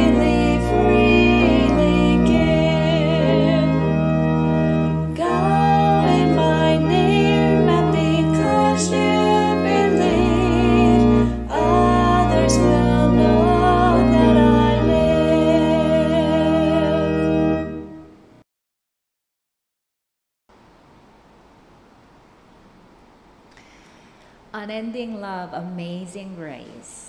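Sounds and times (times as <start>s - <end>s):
person singing: 0.0s - 4.0s, 5.2s - 17.4s
organ music: 0.0s - 18.3s.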